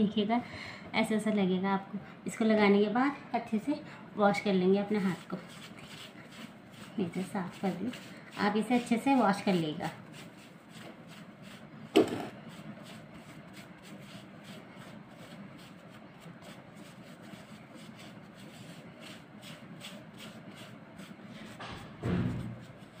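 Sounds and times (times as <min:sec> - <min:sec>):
cloth rubbing against skin: 0:04.8 - 0:23.0
loud knock: 0:21.6 - 0:22.7.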